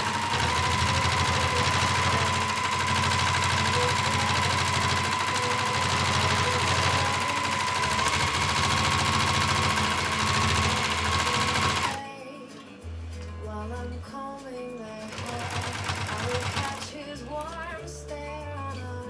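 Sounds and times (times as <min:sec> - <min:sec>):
sewing machine stitching: 0:00.0 - 0:12.0, 0:15.0 - 0:17.0.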